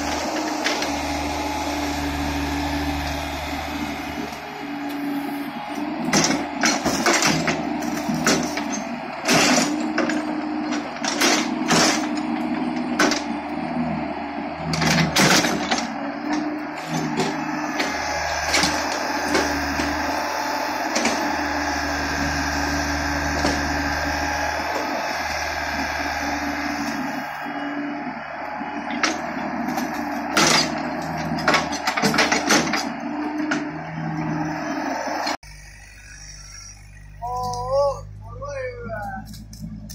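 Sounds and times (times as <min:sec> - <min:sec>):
excavator diesel engine running: 0:00.0 - 0:39.9
excavator bucket knocking and clanking: 0:06.0 - 0:13.3.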